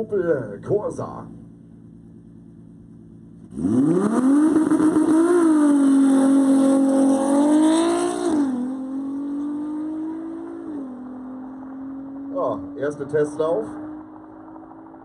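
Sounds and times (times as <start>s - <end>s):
car engine revving hard: 3.5s - 14.9s.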